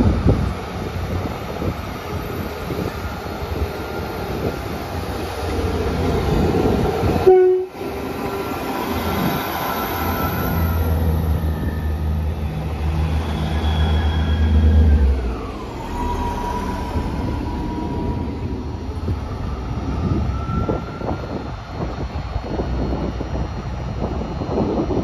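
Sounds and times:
train rumble: 0.0 - 25.0
diesel engine droning: 4.5 - 24.9
high whine sliding down in pitch: 9.6 - 21.5.

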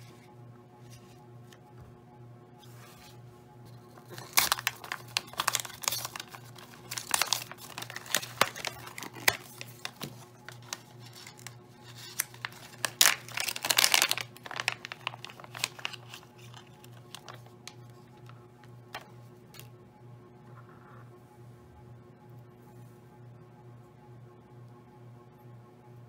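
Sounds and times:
plastic bag crinkling: 4.0 - 19.7.

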